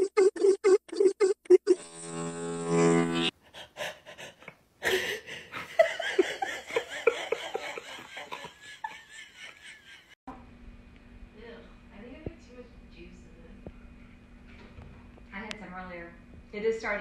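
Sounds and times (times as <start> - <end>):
person laughing: 3.8 - 10.2.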